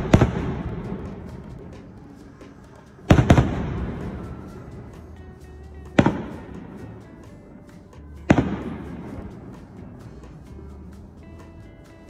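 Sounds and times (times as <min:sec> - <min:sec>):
firework shells booming: 0:00.0 - 0:01.7.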